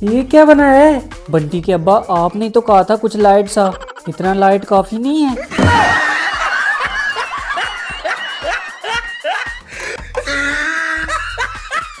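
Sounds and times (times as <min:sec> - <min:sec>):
background music: 0:00.0 - 0:12.0
snickering laughter: 0:03.6 - 0:04.3, 0:05.4 - 0:12.0.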